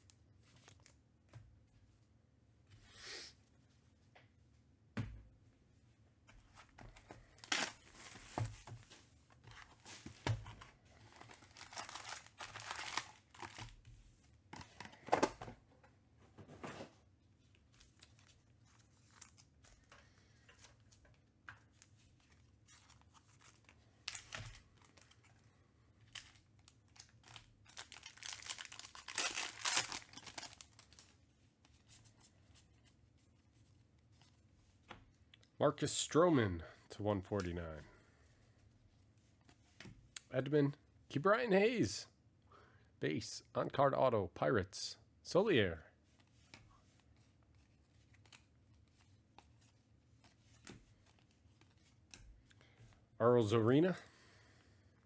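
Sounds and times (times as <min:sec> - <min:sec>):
card pack wrappers tearing and crinkling: 0:07.4 - 0:08.3, 0:11.0 - 0:13.7, 0:26.1 - 0:31.1.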